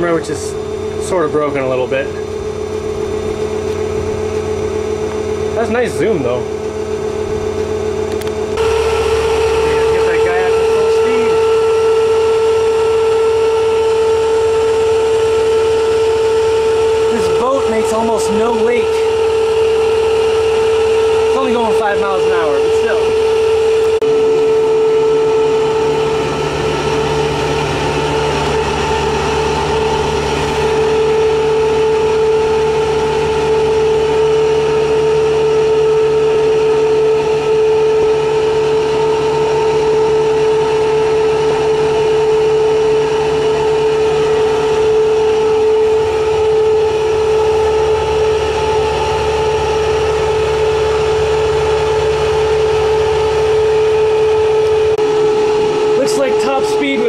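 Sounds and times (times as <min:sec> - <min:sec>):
electric motor whine: 0:00.0 - 0:57.0.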